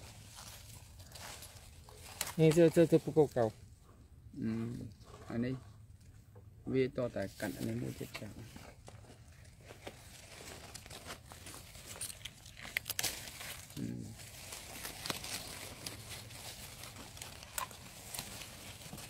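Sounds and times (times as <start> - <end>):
plastic tape crinkling: 8.8 - 19.0.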